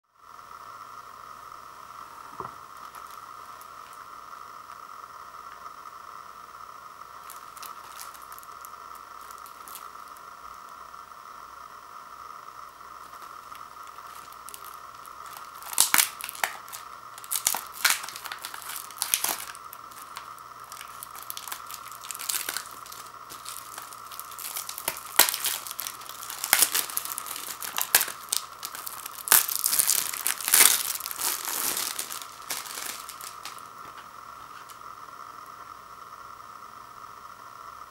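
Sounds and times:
plastic wrap tearing and crinkling: 0:02.7 - 0:04.0, 0:07.2 - 0:10.2, 0:13.0 - 0:34.8.

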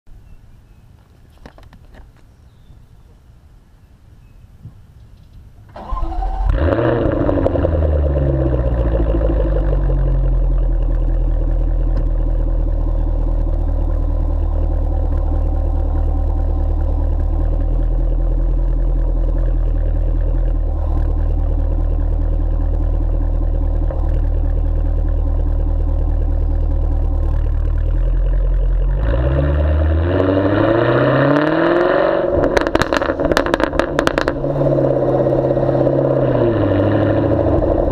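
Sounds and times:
car engine exhaust idling: 0:05.8 - 0:37.9.

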